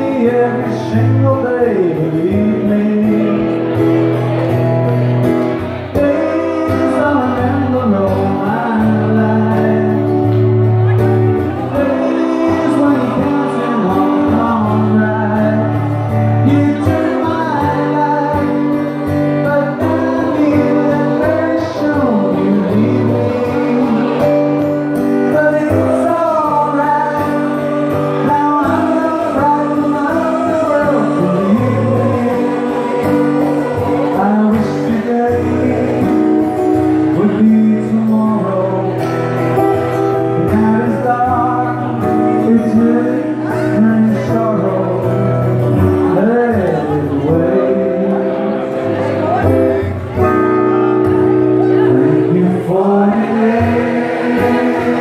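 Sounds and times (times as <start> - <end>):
live band accompaniment: 0.0 - 55.0
choir singing a pop song: 27.2 - 36.2, 52.7 - 55.0.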